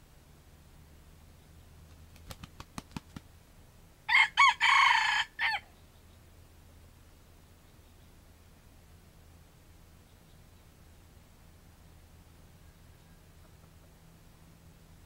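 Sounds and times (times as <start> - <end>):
wings flapping claps: 1.9 - 3.3
rooster crowing: 4.1 - 5.7.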